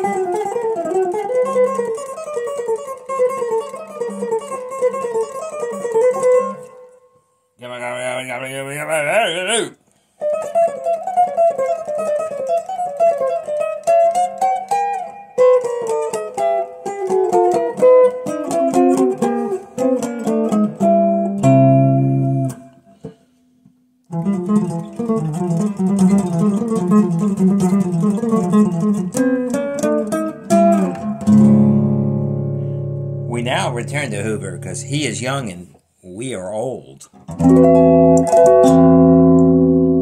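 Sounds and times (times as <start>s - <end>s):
electric guitar melodic runs: 15.4s - 22.7s, 24.1s - 35.2s, 37.3s - 40.0s.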